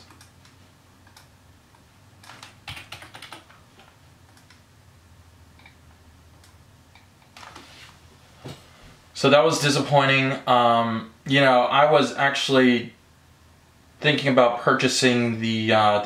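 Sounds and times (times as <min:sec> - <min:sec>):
typing on computer keyboard: 0:02.2 - 0:04.6.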